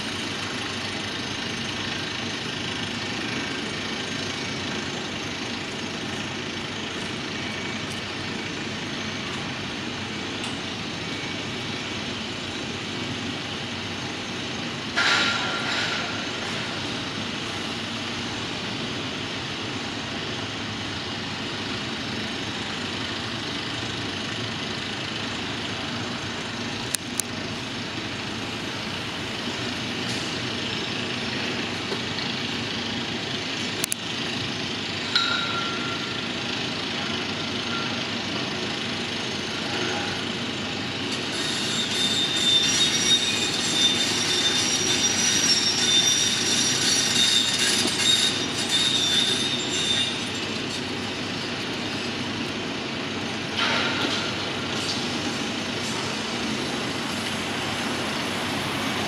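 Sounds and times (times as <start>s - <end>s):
heavy machinery rumble: 0.0s - 59.0s
traffic: 0.0s - 59.0s
metallic squealing machines: 3.0s - 12.8s, 34.9s - 38.8s, 39.4s - 52.4s.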